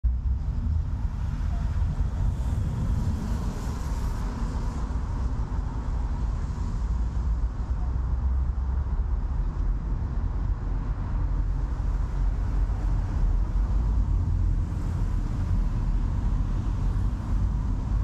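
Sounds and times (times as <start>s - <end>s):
low rumble of traffic: 0.0s - 18.0s
tyres hissing on wet road: 0.9s - 8.7s.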